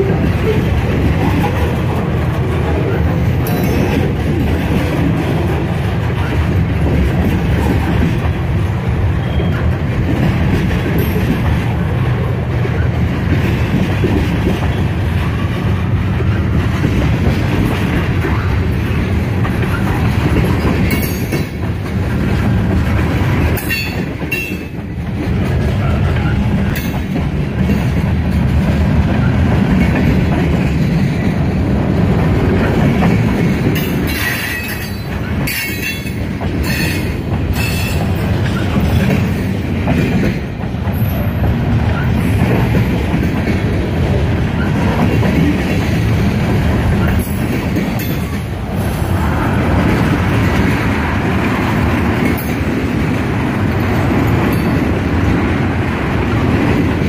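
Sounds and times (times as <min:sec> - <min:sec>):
freight train rumbling: 0:00.0 - 0:57.0
wheels clicking over rail joints: 0:09.2 - 0:48.8.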